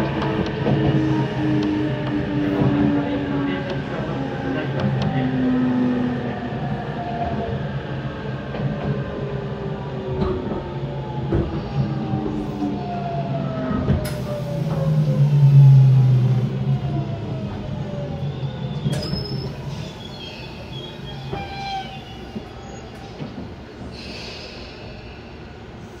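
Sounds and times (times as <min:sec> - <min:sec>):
wheel or brake squeals: 0:18.3 - 0:23.0.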